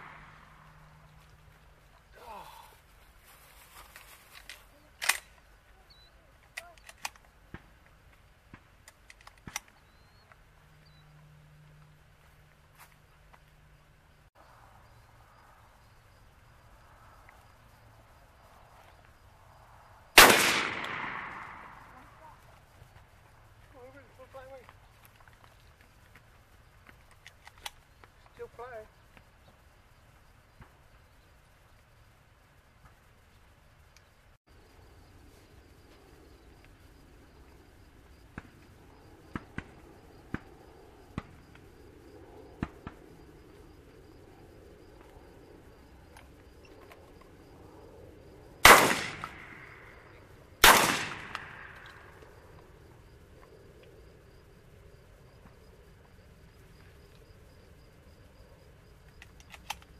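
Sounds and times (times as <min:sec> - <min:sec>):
high insect chirping: 0:09.6 - 0:59.9
shotgun shot with echo: 0:20.2 - 0:21.8, 0:48.6 - 0:49.7, 0:50.6 - 0:51.9.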